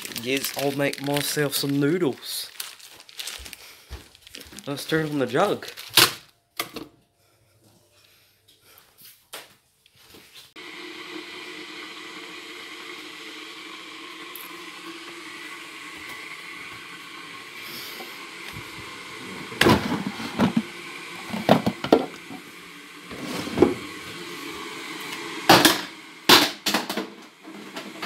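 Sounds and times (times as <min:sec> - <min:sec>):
electric kettle humming: 0:10.6 - 0:28.0
plastic lid falling on floor: 0:25.5 - 0:27.2.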